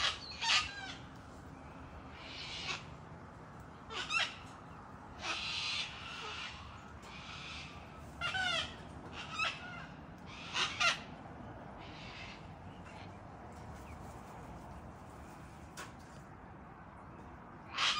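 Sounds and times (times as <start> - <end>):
cockatoo squawking: 5.2 - 11.1.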